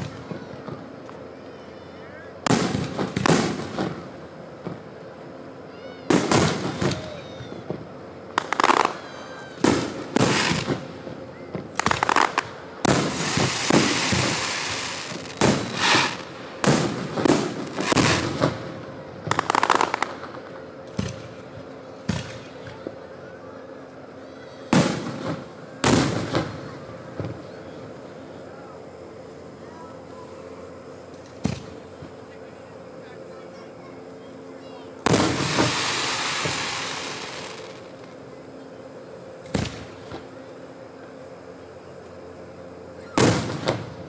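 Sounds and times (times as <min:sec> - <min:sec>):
firework shells booming: 0:02.5 - 0:04.9, 0:06.1 - 0:07.1, 0:11.5 - 0:21.4, 0:35.0 - 0:38.1, 0:43.2 - 0:44.0.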